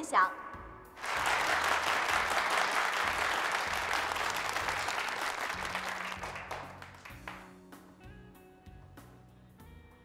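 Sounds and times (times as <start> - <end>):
audience applauding: 1.0 - 7.6.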